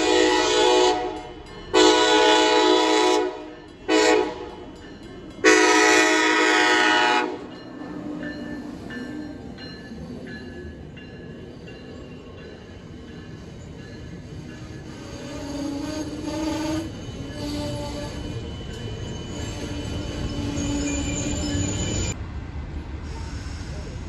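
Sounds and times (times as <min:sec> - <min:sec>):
train air horn blasts: 0:00.0 - 0:04.6, 0:05.4 - 0:07.5, 0:14.8 - 0:18.3
train rumbling by: 0:00.0 - 0:24.0.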